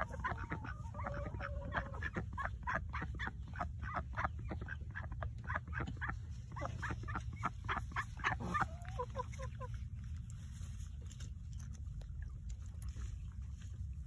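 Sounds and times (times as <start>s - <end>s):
ducks quacking: 0.0s - 10.2s
steady low rumble: 0.0s - 14.0s.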